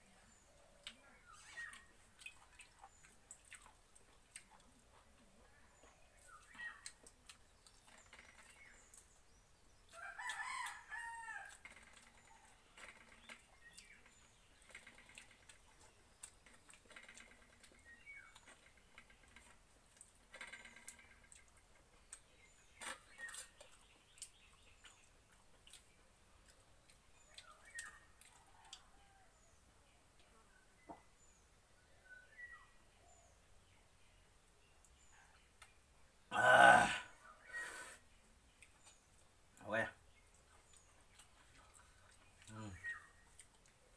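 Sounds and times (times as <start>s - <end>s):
faint eating clicks: 1.8s - 9.1s, 11.4s - 29.0s, 40.2s - 43.9s
bird calls: 37.2s - 43.4s.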